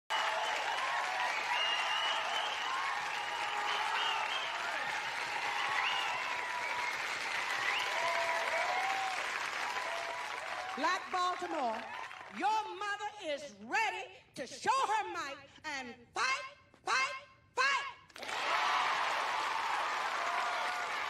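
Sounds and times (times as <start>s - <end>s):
audience cheering: 0.1s - 12.4s, 18.2s - 21.0s
audience clapping: 0.1s - 12.4s, 18.1s - 21.0s.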